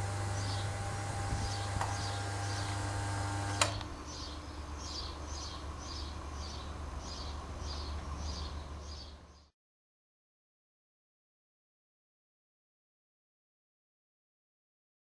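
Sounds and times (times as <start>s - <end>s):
steady low hum: 0.0s - 9.5s
sharp click: 3.5s - 3.9s.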